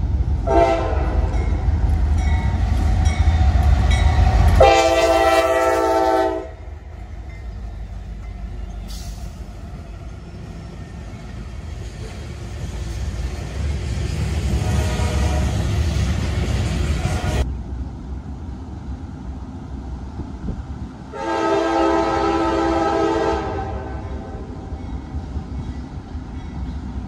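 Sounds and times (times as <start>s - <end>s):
train rumbling: 0.0s - 27.0s
locomotive air horn: 0.4s - 1.3s, 4.5s - 6.7s, 14.6s - 15.8s, 21.1s - 24.5s.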